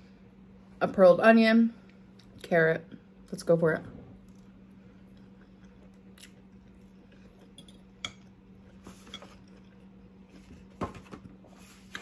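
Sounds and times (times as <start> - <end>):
steady low hum: 0.0 - 12.0
person chewing food: 4.2 - 8.8.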